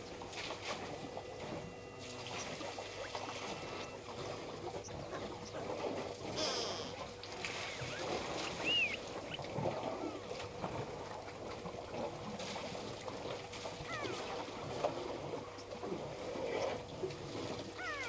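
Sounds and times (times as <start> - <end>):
water sloshing and splashing: 0.0 - 18.0
short high bird chirps: 7.8 - 9.0.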